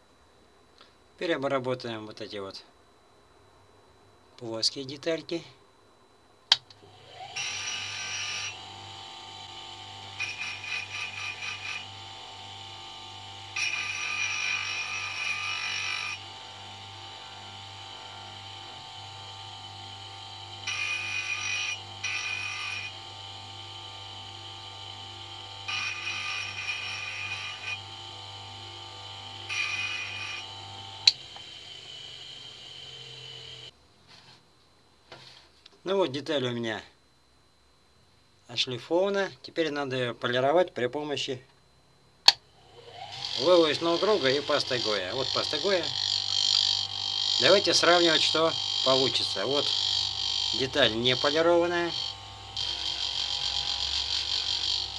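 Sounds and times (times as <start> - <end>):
bench grinder motor humming: 6.8 - 33.7, 42.6 - 54.9
gritty rasp of metal on sanding disc: 10.2 - 11.8, 25.7 - 27.8, 43.2 - 46.6.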